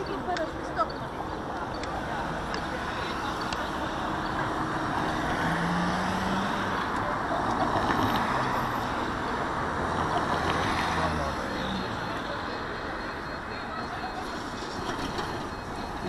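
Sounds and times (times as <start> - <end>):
city traffic rumble: 0.0 - 16.0.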